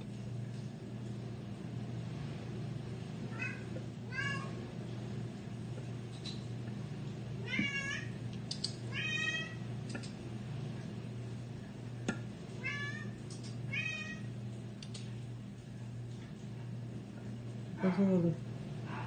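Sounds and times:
steady low hum: 0.0s - 19.0s
cat meowing: 8.9s - 9.6s.

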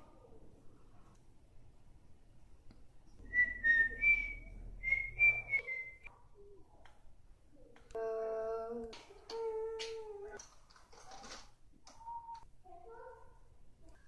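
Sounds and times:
person whistling: 3.3s - 6.1s.

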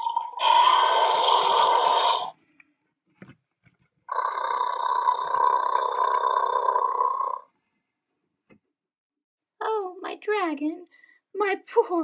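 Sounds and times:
toy dinosaur roaring: 0.0s - 2.4s, 4.1s - 7.5s.

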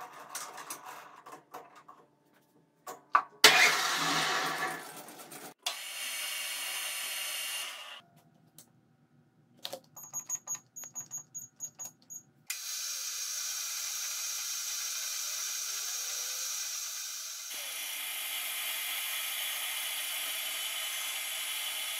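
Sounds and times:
keypad beeps: 9.7s - 12.3s
metal lathe hissing: 12.5s - 21.9s.

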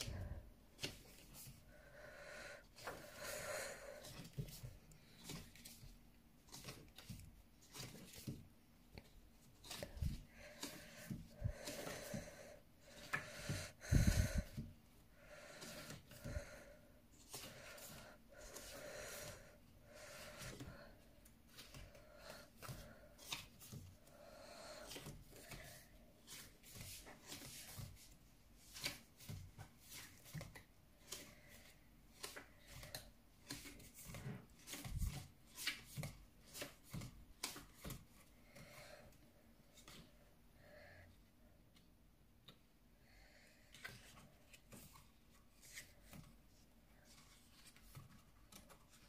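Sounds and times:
close breathing: 0.0s - 5.7s, 9.6s - 27.9s, 38.3s - 41.6s.

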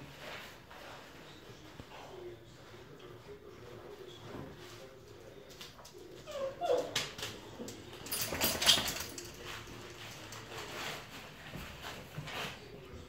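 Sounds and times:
puppies scuffling: 0.0s - 13.0s
paws clicking on tiled floor: 4.4s - 12.6s
puppy whining: 6.2s - 7.4s.

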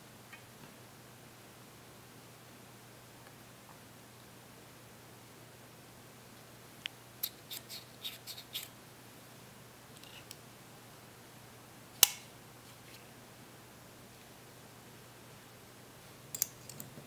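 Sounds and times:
metal clip clicking on glassware: 16.3s - 16.9s.

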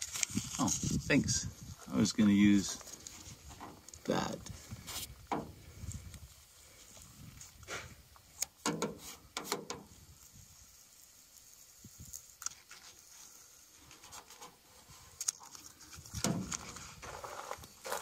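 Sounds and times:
paper rustling and crinkling: 0.0s - 1.1s, 12.1s - 18.0s.

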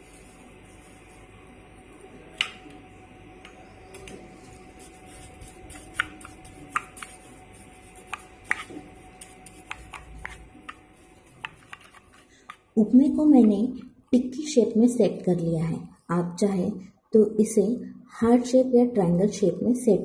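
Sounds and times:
spoon stirring in a bowl: 4.3s - 12.7s.

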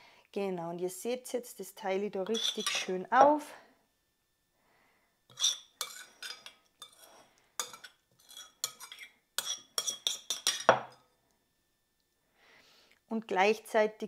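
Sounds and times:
spoon clinking against cups: 2.3s - 2.9s, 5.3s - 11.0s.

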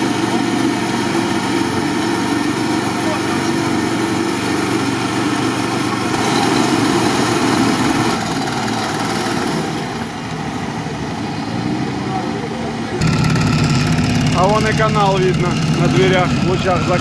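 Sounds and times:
small petrol engine running: 0.0s - 17.0s.

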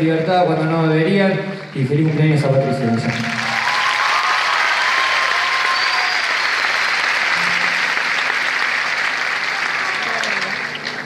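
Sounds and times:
audience applauding: 2.9s - 11.0s.

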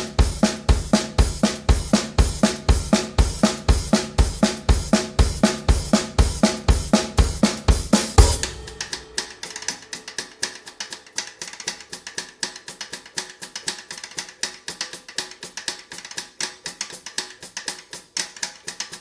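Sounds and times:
heavy kick drum: 0.0s - 10.0s
background music with drum beat: 0.0s - 19.0s
light quick percussion: 7.5s - 11.1s.

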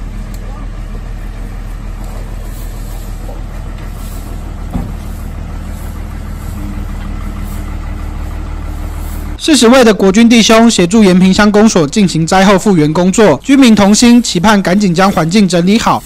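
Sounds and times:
higher steady hum: 0.0s - 9.9s
truck engine idling: 0.0s - 16.0s.

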